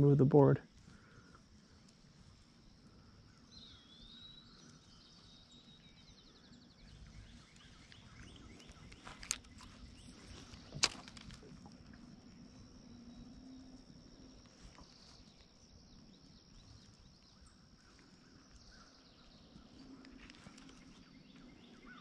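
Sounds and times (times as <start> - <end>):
birds singing: 0.7 - 22.0
sharp clicks: 8.6 - 9.7, 10.4 - 11.5.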